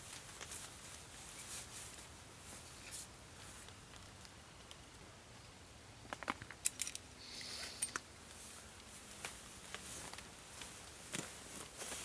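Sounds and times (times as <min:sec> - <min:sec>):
rustling hiss: 0:00.0 - 0:12.0
sharp clicks of camping gear: 0:06.0 - 0:12.0.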